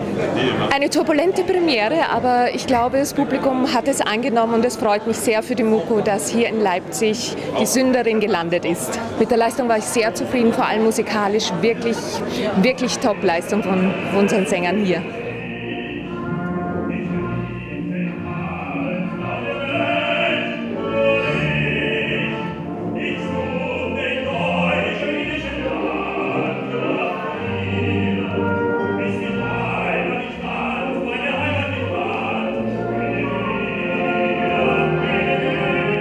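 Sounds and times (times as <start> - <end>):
orchestra playing: 10.1 - 36.0
man singing operatically: 12.5 - 36.0.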